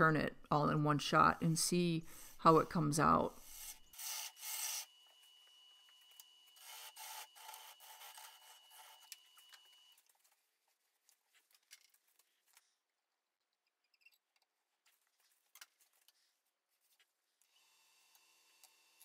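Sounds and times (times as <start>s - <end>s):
lathe whine: 3.4s - 9.9s.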